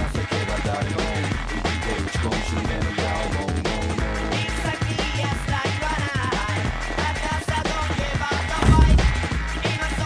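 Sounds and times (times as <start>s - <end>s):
electronic drum and bass music: 8.6s - 9.6s.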